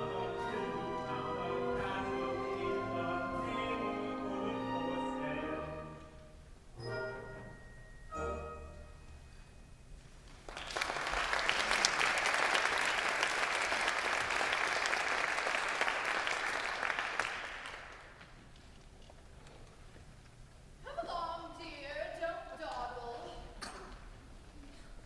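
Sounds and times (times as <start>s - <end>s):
audience applauding: 10.3s - 18.4s.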